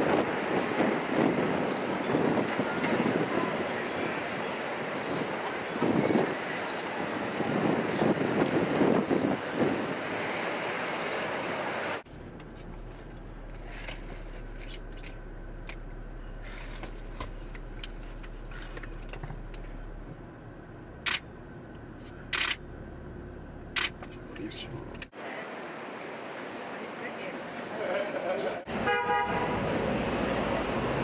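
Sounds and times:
loud rushing street noise: 0.0s - 12.1s, 23.8s - 31.0s
street background hum: 0.0s - 31.0s
camera shutters clicking: 21.0s - 21.2s, 22.3s - 22.6s, 23.8s - 24.0s.

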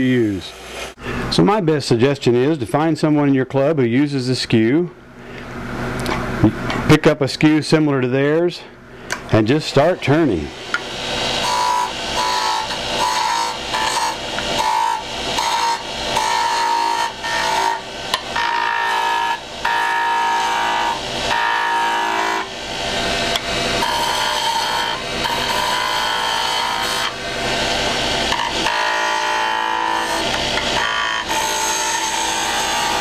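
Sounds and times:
chisel cutting wood on a lathe: 10.7s - 33.0s.

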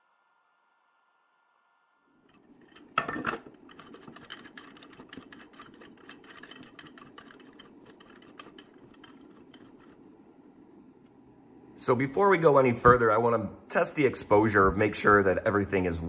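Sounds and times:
low fan hum: 0.0s - 16.0s
thumbscrews clicking and scraping: 2.3s - 10.3s.

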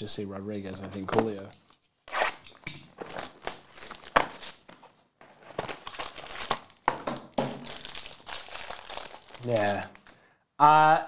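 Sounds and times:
wrapping crinkling and tearing: 2.1s - 4.7s, 5.4s - 6.8s, 7.6s - 10.2s.

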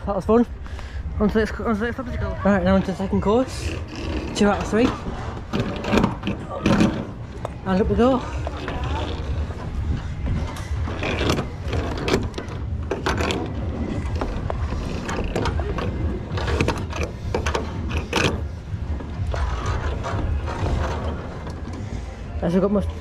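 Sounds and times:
steady low rumble: 0.0s - 23.0s
climbing gear clicking and rattling: 2.6s - 22.2s.

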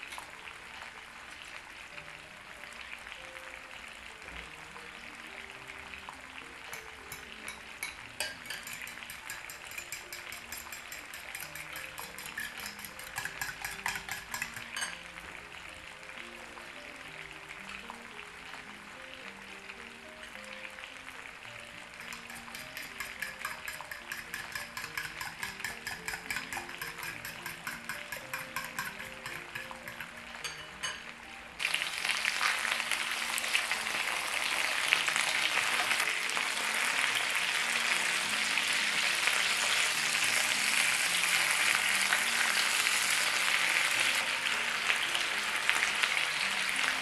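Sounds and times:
fork beating eggs in glass bowl: 7.1s - 15.0s, 22.0s - 31.0s.

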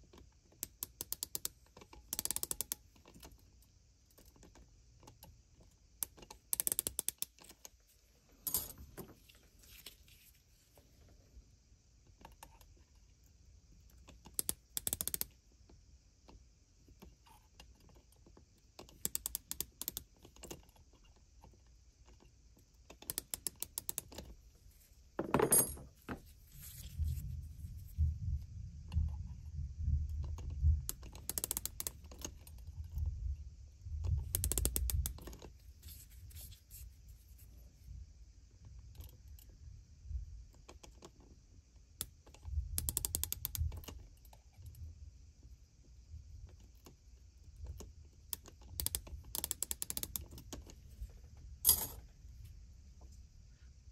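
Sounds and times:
micrometer ratchet clicking: 0.6s - 2.8s, 6.0s - 7.4s, 14.2s - 15.4s, 18.9s - 20.1s, 30.9s - 32.3s, 34.1s - 35.4s, 42.8s - 43.8s, 48.3s - 50.4s.

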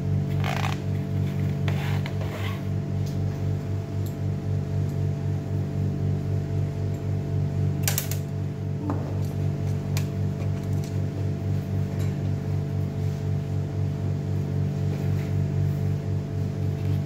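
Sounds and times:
low pulsing hum: 0.0s - 17.0s.

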